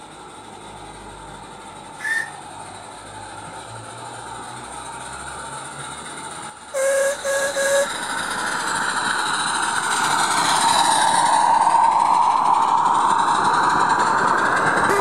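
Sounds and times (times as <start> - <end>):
model train running: 0.0 - 15.0
model locomotive whistle toots: 2.0 - 2.6, 6.7 - 8.5.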